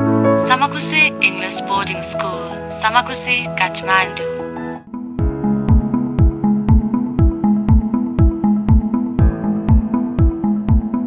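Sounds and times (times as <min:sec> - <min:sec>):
held synth chords: 0:00.0 - 0:11.0
steady kick drum: 0:05.2 - 0:11.0.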